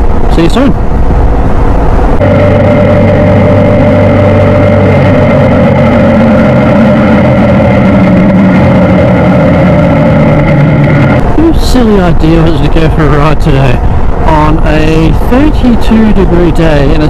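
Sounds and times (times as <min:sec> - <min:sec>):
motorcycle engine running: 0:02.2 - 0:12.4.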